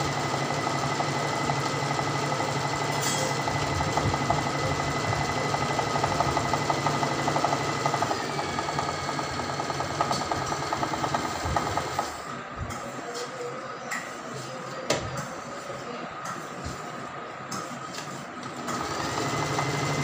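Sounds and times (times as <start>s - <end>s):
sewing machine stitching fast: 0.0s - 12.2s, 18.5s - 20.0s.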